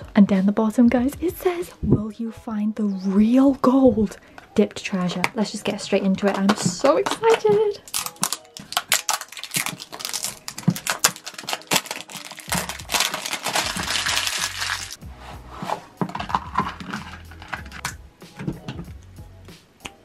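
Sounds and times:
background music with low bass: 0.0s - 20.0s
plastic shrink wrap crinkling: 7.2s - 15.0s.

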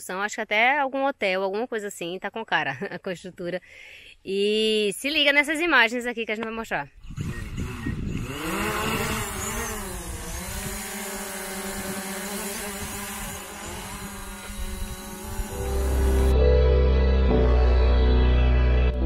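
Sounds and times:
drone propellers whirring: 7.0s - 19.0s
background music: 15.5s - 19.0s.

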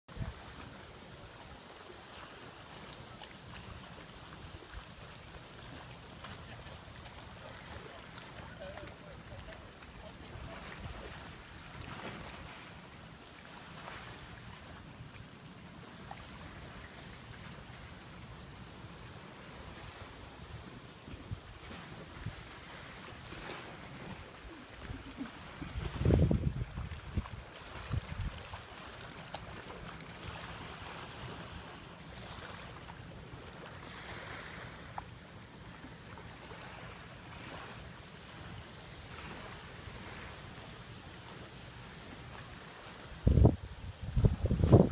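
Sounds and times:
wind: 0.0s - 44.9s
water lapping: 0.1s - 44.9s
wind rumbling on microphone: 19.5s - 29.0s, 43.1s - 44.9s.

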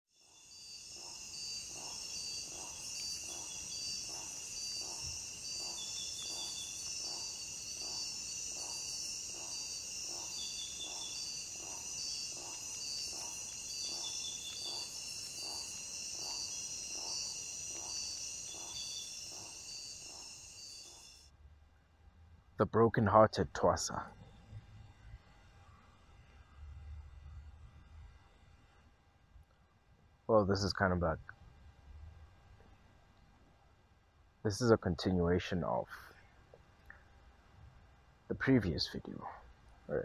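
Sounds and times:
crickets chirping: 0.1s - 21.3s, 38.4s - 40.0s.

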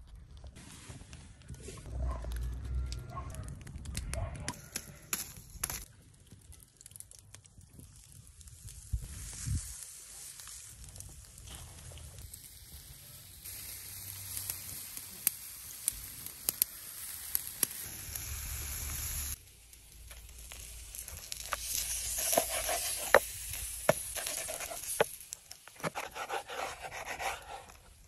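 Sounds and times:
embers crackling pops: 1.4s - 12.5s, 13.4s - 28.0s
steaks sizzling on a grill: 12.0s - 25.6s
knife slicing on cutting board: 21.5s - 25.1s, 25.7s - 27.8s.

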